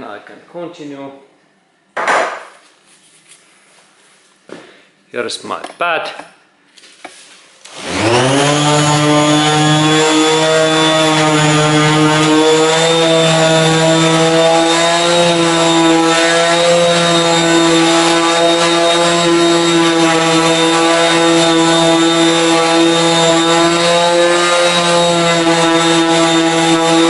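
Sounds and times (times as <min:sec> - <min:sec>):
orbital polisher whirring: 0:07.7 - 0:27.0.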